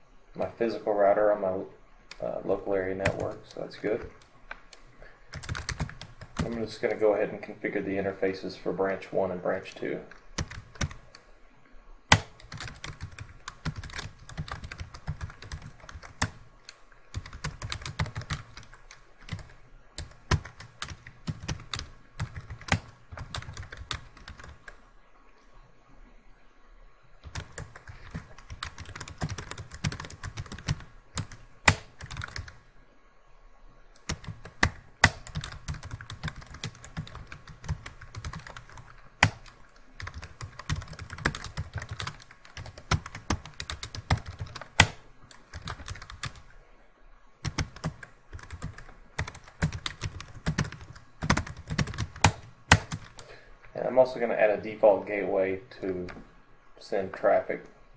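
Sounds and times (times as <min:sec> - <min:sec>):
computer keyboard typing: 0:02.1 - 0:07.0, 0:10.4 - 0:11.2, 0:12.1 - 0:24.8, 0:27.2 - 0:32.6, 0:34.0 - 0:46.4, 0:47.4 - 0:53.3.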